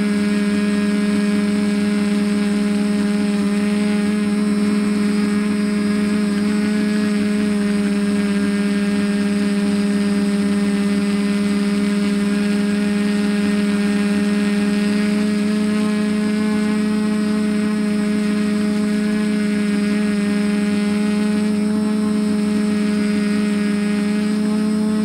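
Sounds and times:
quadcopter motors humming: 0.0s - 25.0s.

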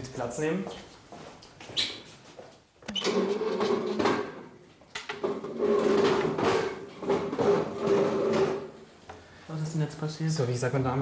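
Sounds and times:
chairs scraping across floor: 3.0s - 4.5s, 5.1s - 8.8s.

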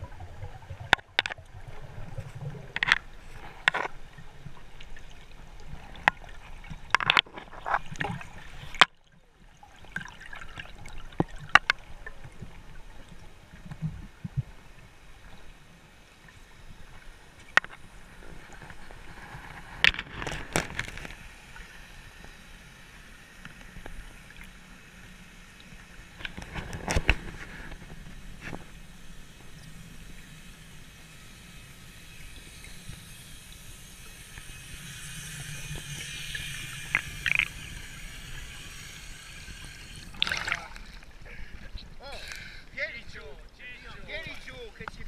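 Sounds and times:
underwater hiss: 20.9s - 41.6s.

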